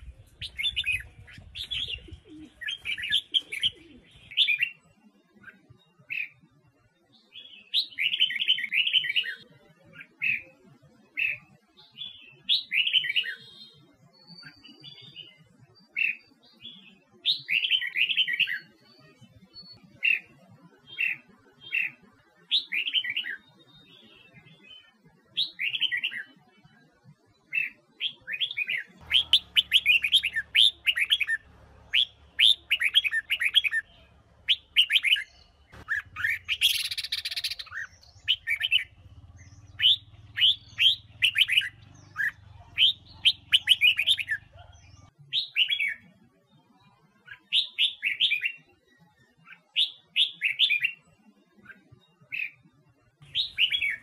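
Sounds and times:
bird warbling: 29.0 - 45.0
faint low hum: 29.0 - 45.1.

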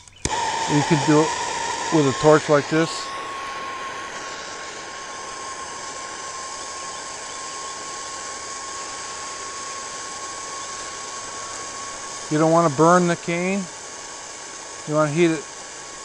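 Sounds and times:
thin steady whistle: 0.1 - 16.0
torch flame hissing: 0.2 - 16.0.

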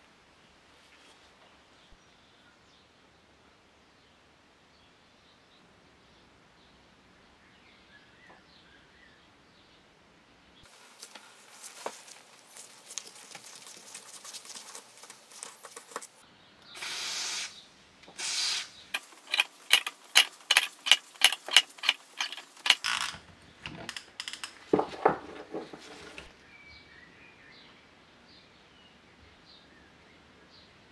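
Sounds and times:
short hissing bursts: 16.8 - 19.7
metal parts clanking and ringing: 19.0 - 24.5
ratchet handle clicking: 19.0 - 24.5.

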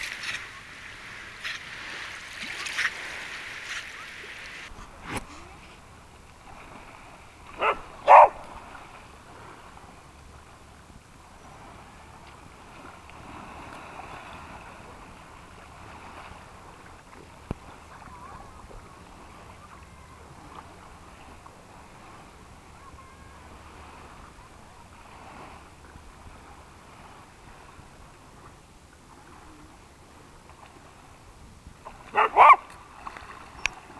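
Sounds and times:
dog barking: 7.6 - 8.4, 32.1 - 32.7.

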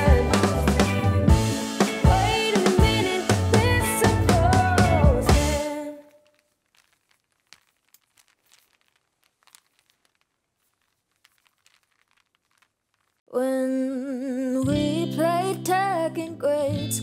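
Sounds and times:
faint clicks and crackles: 5.5 - 13.3.

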